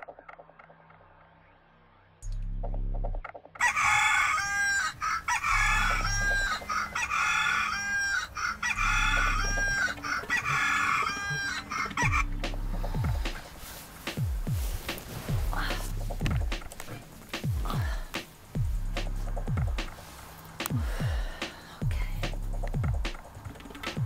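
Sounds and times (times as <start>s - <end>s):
alarm clock rooster crow: 3.6s - 12.3s.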